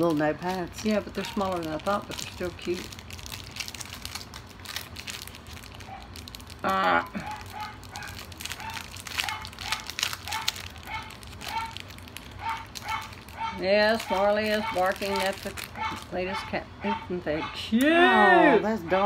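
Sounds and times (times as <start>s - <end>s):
plastic bag crinkling: 0.0s - 16.2s
dog barking: 7.2s - 11.8s, 12.4s - 17.6s.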